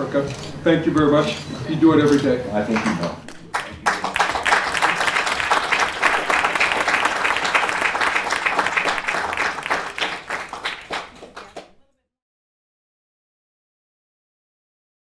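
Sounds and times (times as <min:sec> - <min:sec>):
audience applauding: 0:02.7 - 0:11.8.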